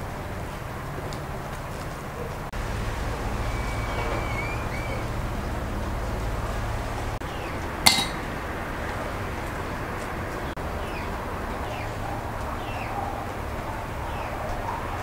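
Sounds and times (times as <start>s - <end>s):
steady background noise: 0.0s - 15.0s
faint bird chirps: 3.2s - 5.2s
kitchenware clinking: 7.8s - 8.4s.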